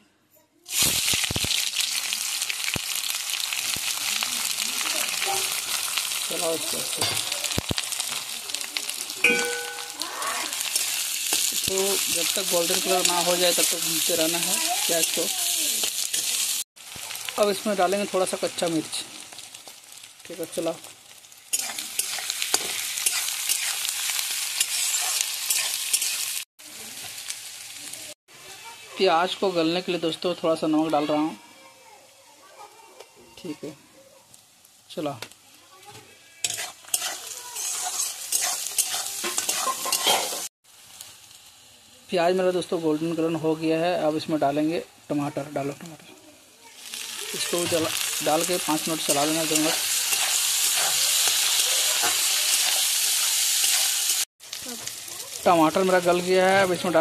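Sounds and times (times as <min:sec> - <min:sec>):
onions sizzling in oil: 0:00.6 - 0:57.0
ringing metal clang: 0:09.2 - 0:10.2
spatula scraping a metal pan: 0:36.3 - 0:40.5, 0:50.0 - 0:52.9.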